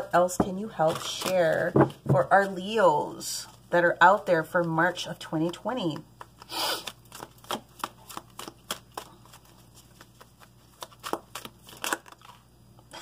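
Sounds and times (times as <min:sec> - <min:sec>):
cards being shuffled: 0:05.4 - 0:12.4.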